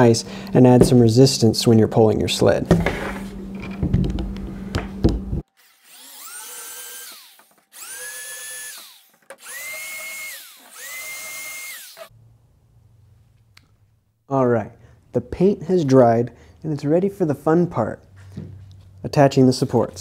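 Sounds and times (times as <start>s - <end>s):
cordless drill motor whine: 5.8s - 12.1s.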